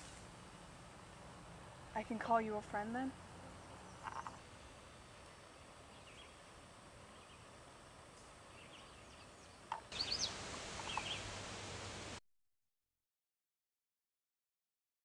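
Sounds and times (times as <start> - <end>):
open-air field hiss: 0.0 - 12.2
bird chirps: 5.9 - 6.4, 8.5 - 11.3.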